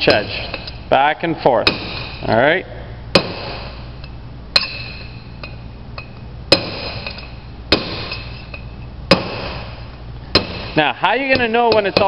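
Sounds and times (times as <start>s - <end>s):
hammer striking steel punch: 1.5s - 2.4s, 3.1s - 3.9s, 4.5s - 12.0s.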